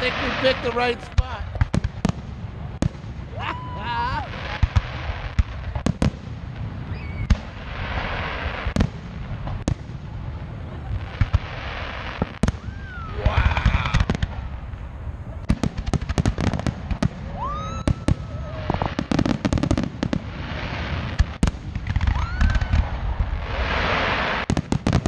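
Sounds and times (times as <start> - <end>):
rapid firework crackling: 0.0 - 25.0
rising firework whistles: 6.6 - 8.8, 11.4 - 14.4, 16.3 - 24.6.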